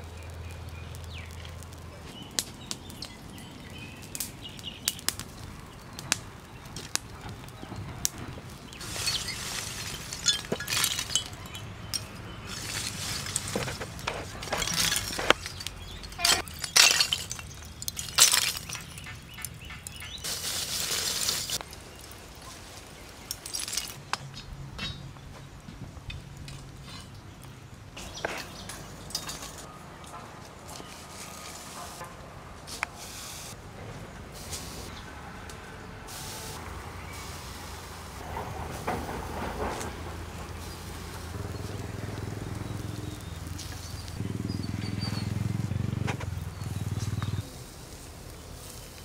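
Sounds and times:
charcoal lumps clinking: 5.9s - 25.0s, 28.0s - 32.0s.

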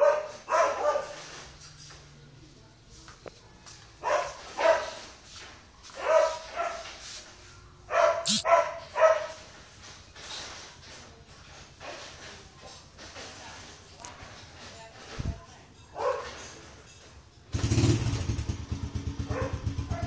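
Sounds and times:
dog barking: 0.0s - 1.4s, 4.0s - 5.1s, 5.9s - 7.0s, 7.9s - 9.4s, 16.0s - 16.5s, 19.2s - 20.0s.

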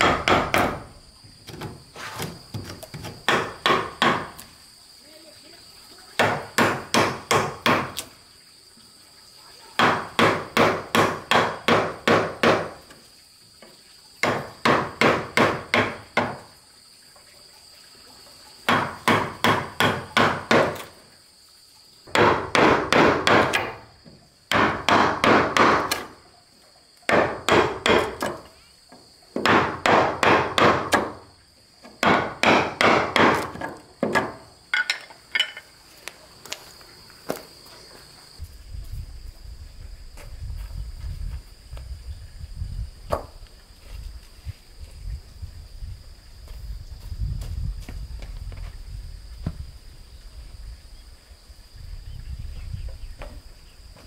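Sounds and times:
mallet striking chisel into wood: 0.0s - 0.8s, 3.3s - 4.4s, 6.2s - 8.0s, 9.8s - 12.8s, 14.2s - 16.4s, 18.7s - 20.8s, 22.1s - 23.8s, 24.5s - 26.1s, 27.1s - 28.4s, 29.4s - 31.2s, 32.0s - 35.0s
high insect drone: 0.0s - 54.0s.

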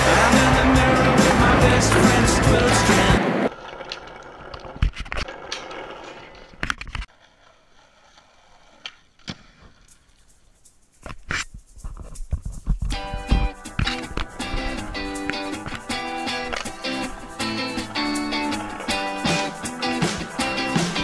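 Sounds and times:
music track: 0.0s - 3.4s, 13.0s - 21.0s
skateboard wheels rolling on asphalt: 0.0s - 10.5s, 13.0s - 21.0s.

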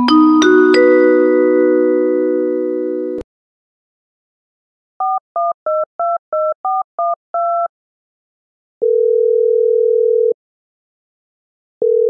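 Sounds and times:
touch-tone keypad beeps: 5.0s - 7.7s.

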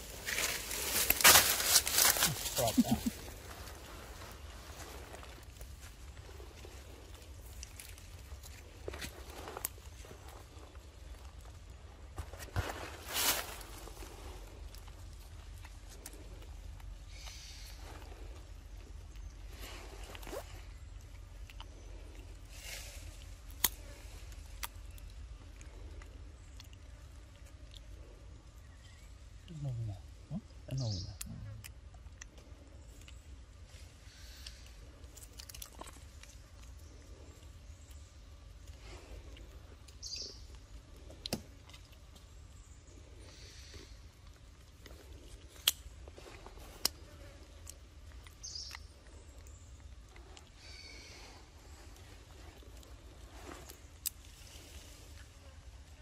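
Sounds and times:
low steady rumble: 0.0s - 56.0s
monkey chewing clicks: 34.4s - 36.8s.

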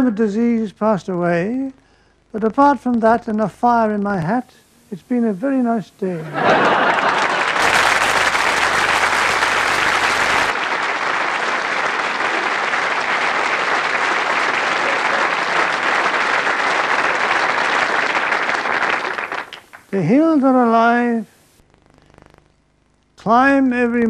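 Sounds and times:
audience applauding: 6.4s - 19.9s.

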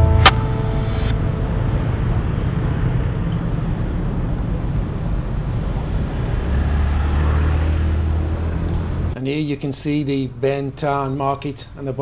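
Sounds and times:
motorbikes and cars passing: 1.1s - 9.2s.

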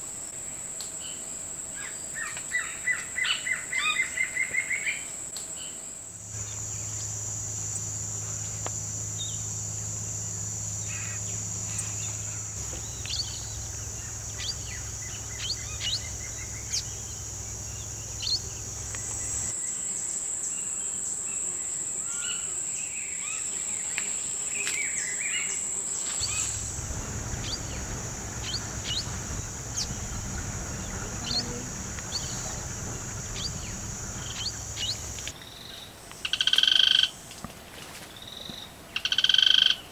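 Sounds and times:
low hum: 6.2s - 19.5s, 26.2s - 35.3s
high-pitched insect drone: 6.2s - 37.2s, 39.0s - 39.8s
bird chirps and calls: 10.8s - 17.2s, 26.2s - 35.3s.

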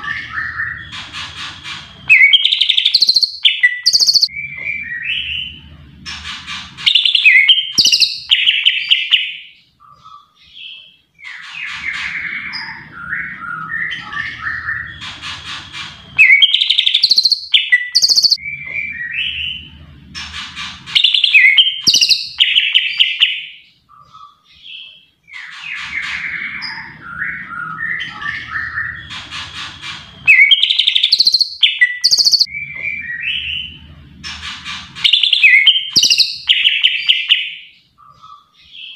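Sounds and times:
bird singing chirps and trills: 0.0s - 38.9s
low hum: 4.3s - 7.0s, 12.0s - 16.2s, 18.4s - 21.0s, 26.0s - 30.3s, 32.4s - 35.1s.

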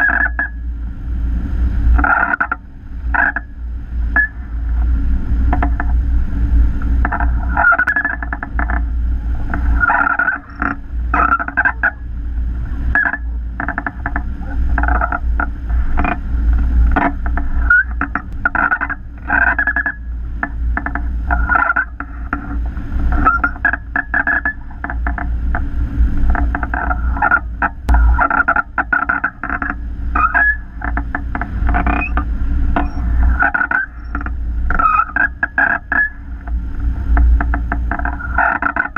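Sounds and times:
wind fluttering: 0.0s - 38.9s
wind whistles: 0.0s - 38.9s.

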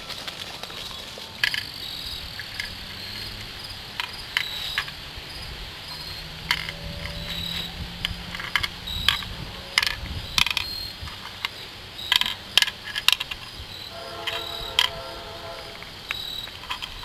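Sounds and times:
game pieces clicking on wood: 6.4s - 13.6s.

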